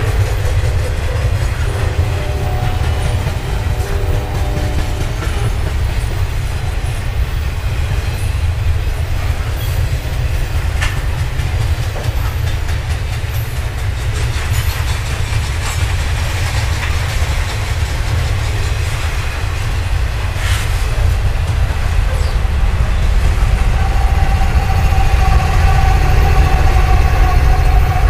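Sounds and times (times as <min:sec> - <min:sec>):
locomotive engine whine: 0:00.0 - 0:10.9, 0:18.0 - 0:28.0
train wheels rumbling on rails: 0:00.0 - 0:28.0.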